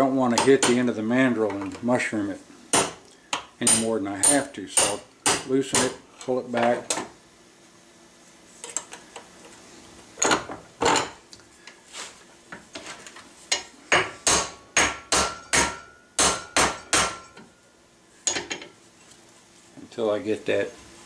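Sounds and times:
hammer striking steel: 0:14.0 - 0:17.4.

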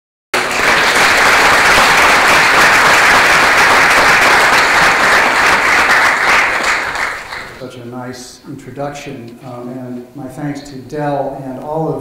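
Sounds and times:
audience applauding: 0:00.4 - 0:07.6.

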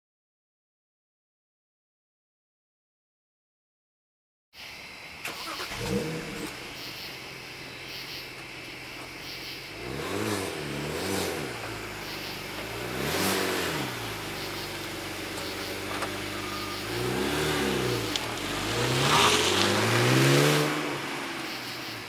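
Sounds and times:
car engine revving: 0:05.2 - 0:22.0.

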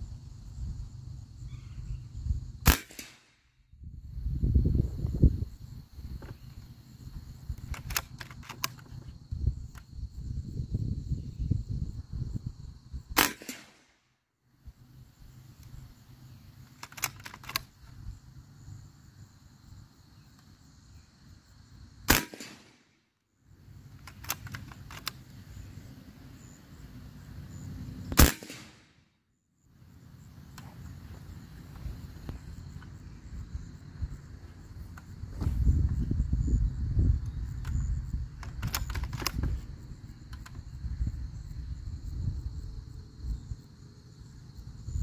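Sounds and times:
air rifle shots: 0:02.6 - 0:03.4, 0:13.2 - 0:14.0, 0:22.1 - 0:22.9, 0:28.1 - 0:29.0.

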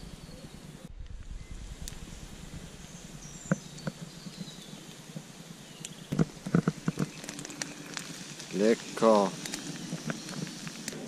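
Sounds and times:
food sizzling in a pan: 0:06.8 - 0:11.0.

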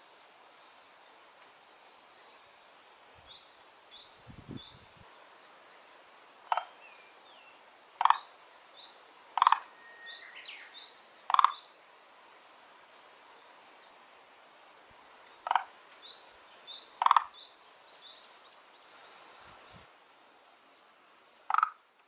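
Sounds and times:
tree frog calling: 0:06.4 - 0:07.0, 0:07.9 - 0:08.5, 0:09.2 - 0:11.7, 0:15.4 - 0:15.9, 0:16.7 - 0:17.6, 0:21.4 - 0:21.8.

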